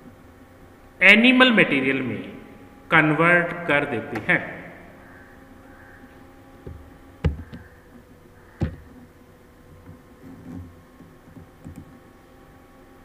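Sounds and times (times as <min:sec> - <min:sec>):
faint steady hum: 0:00.0 - 0:13.0
faint knocks: 0:06.6 - 0:09.1.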